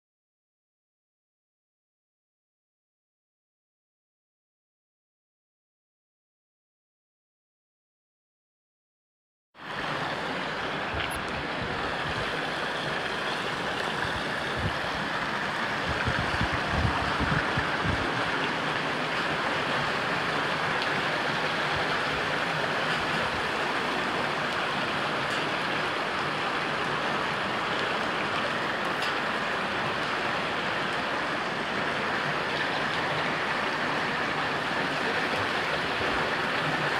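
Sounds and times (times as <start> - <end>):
floodwater running: 9.6 - 36.9
heavy rain pouring: 9.6 - 36.9.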